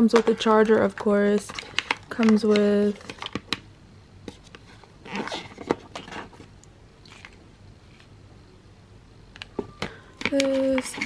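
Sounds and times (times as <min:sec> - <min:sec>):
packaging clicks and taps: 0:00.1 - 0:03.6, 0:09.4 - 0:11.0.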